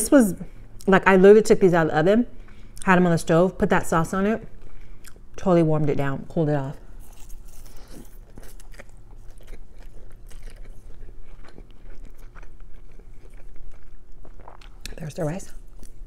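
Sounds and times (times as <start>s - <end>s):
chewing noodles: 7.0s - 15.0s.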